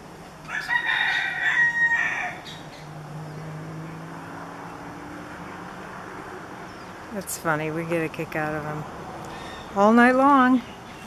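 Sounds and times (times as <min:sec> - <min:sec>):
rooster crowing: 0:00.4 - 0:02.6.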